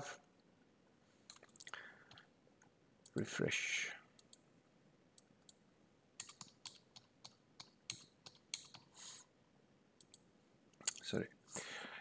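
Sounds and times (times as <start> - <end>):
faint keyboard typing: 1.3 - 3.2, 4.2 - 4.4, 6.2 - 9.2, 10.0 - 11.1.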